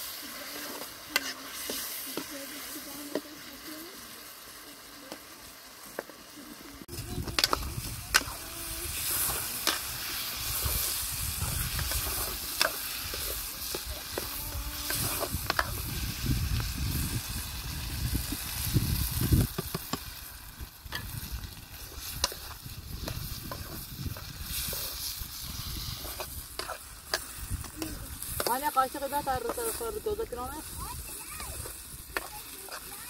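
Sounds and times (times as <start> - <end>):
food sizzling in pan: 0.0 - 33.0
metal spoon scraping pan: 0.2 - 3.3, 7.3 - 15.8, 22.0 - 30.2.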